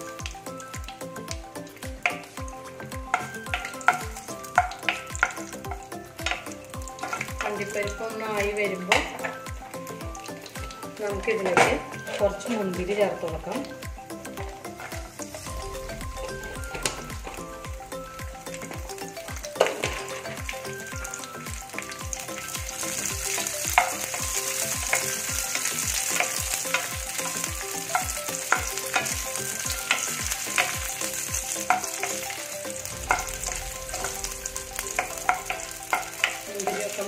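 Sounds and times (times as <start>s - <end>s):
nuts sizzling in frying pan: 0.0s - 37.0s
wooden spatula clicking on pan: 3.1s - 9.4s, 21.6s - 32.5s, 34.9s - 37.0s
low thumps: 14.4s - 20.0s.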